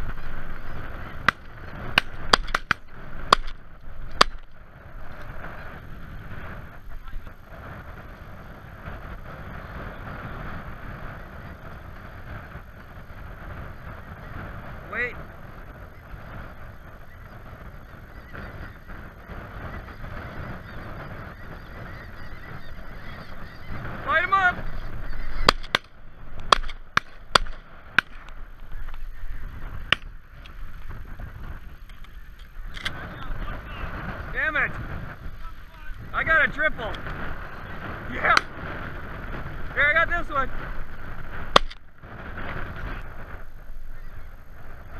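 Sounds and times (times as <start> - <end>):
distant geese calling: 0.0 - 44.9
wind rumbling on microphone: 0.0 - 44.9
shotgun shots: 1.2 - 3.6, 25.4 - 25.9, 26.5 - 28.2, 41.5 - 41.8.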